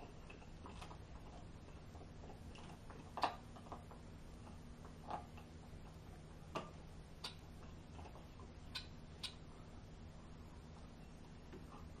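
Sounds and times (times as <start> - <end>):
faint low hum: 0.0 - 12.0
sharp clicks and snaps: 8.7 - 9.4.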